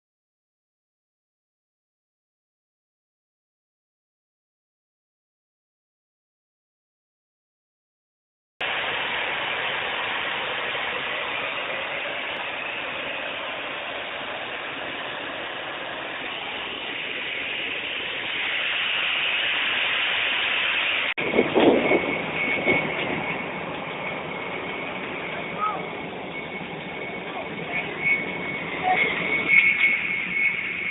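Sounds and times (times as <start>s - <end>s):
airport ramp engine noise: 8.6s - 30.9s
high jet engine whine: 8.6s - 30.9s.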